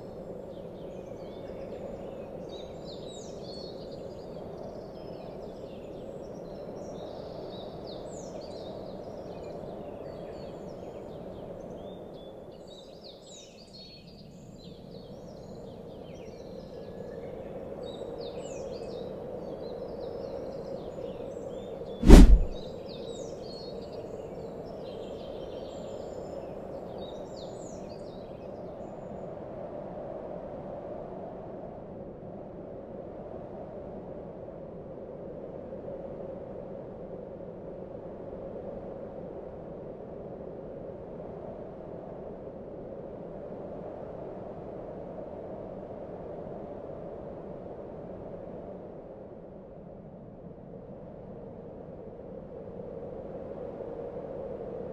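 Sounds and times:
loud sudden thump: 22.0s - 22.6s
low hum: 22.0s - 22.6s.

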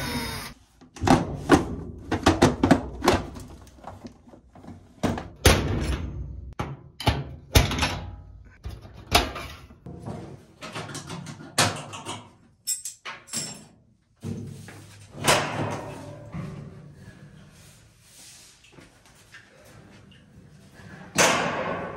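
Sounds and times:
sheet metal knocks and clunks: 21.1s - 21.9s.

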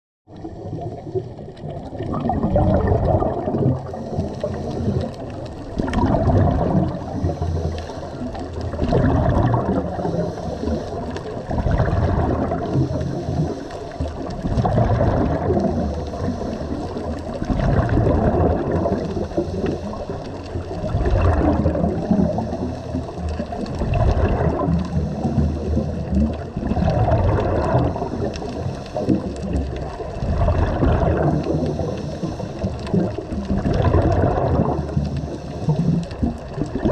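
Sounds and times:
bubbling underwater exhalation: 0.3s - 36.9s
quiet regulator inhalations: 3.8s - 5.8s, 6.8s - 8.9s, 9.7s - 11.5s, 12.6s - 14.4s, 15.8s - 17.5s, 18.8s - 20.8s, 22.0s - 23.6s, 24.8s - 26.6s, 27.7s - 29.8s, 31.1s - 33.4s, 34.7s - 36.6s.

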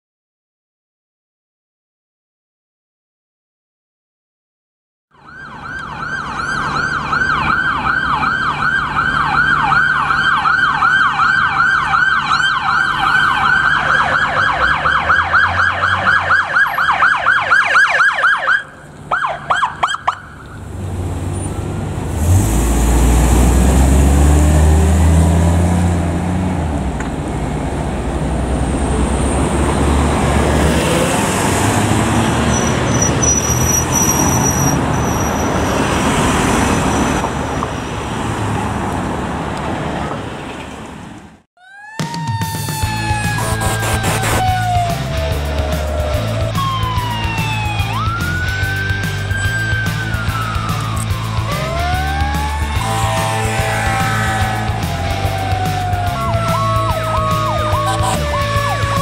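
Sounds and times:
siren chirps: 5.1s - 20.5s, 41.6s - 59.0s
ambulance siren yelping: 5.1s - 20.6s, 41.6s - 59.0s
road traffic noise: 5.1s - 59.0s
vehicle engine rumble: 5.2s - 41.5s, 42.8s - 59.0s.

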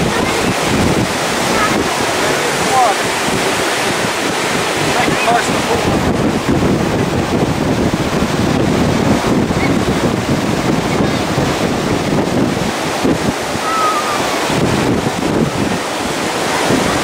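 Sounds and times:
ocean surf: 0.0s - 17.0s
wind buffeting microphone: 0.0s - 17.0s.

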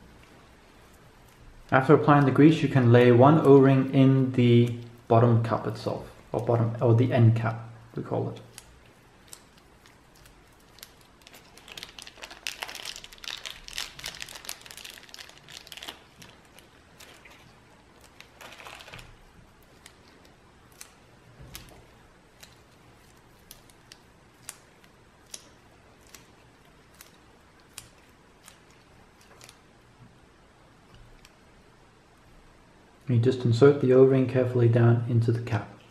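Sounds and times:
paper and plastic bag crinkling: 8.4s - 29.6s.

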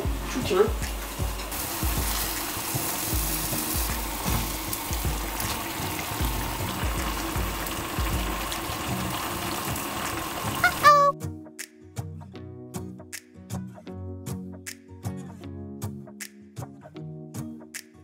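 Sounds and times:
background music with beat: 0.0s - 9.0s, 11.2s - 18.0s
meat sizzling in a wok: 0.0s - 11.1s.

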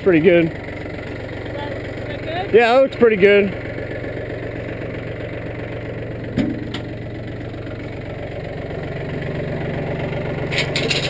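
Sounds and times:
tractor diesel engine idling: 0.0s - 11.0s
sharp knock: 6.4s - 6.9s.

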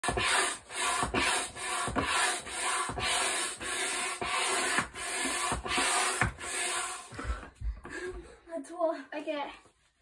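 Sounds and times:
hand air pump whooshing: 0.0s - 7.5s.

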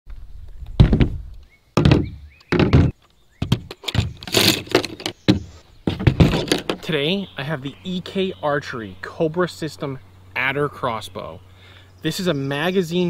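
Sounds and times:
knocks and clatter: 0.8s - 1.2s, 1.8s - 6.9s
heavy thunks on plastic table: 1.8s - 6.8s.

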